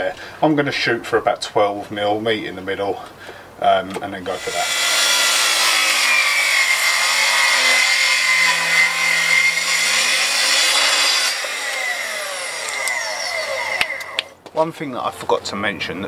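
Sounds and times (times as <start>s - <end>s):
track saw cutting timber: 4.3s - 14.3s.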